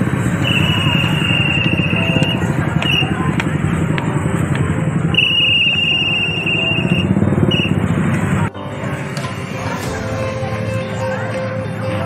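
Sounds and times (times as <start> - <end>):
motorcycle engines: 0.0 - 12.0
pea whistle trilling: 0.4 - 3.2, 5.1 - 7.8.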